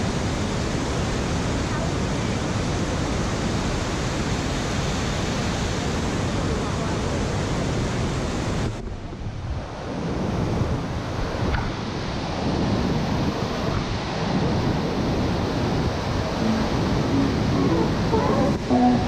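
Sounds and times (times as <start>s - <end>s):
waterfall rushing: 14.9s - 19.0s.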